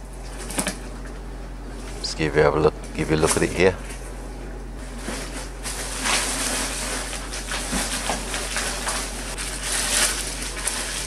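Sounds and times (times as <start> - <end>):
cardboard scraping: 4.8 - 11.0
plastic and bubble wrap rustling: 4.8 - 11.0.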